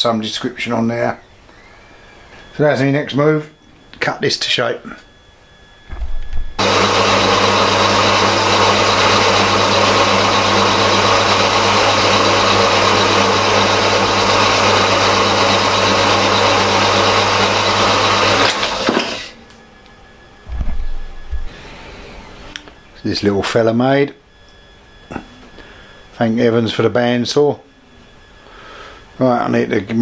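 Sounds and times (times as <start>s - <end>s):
motor hum: 4.8s - 23.0s
bandsaw cutting metal: 6.6s - 19.4s.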